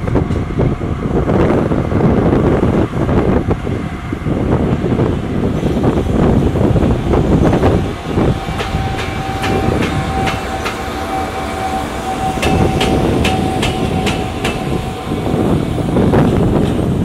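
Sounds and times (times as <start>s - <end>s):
train wheels clicking over rail joints: 5.6s - 17.0s.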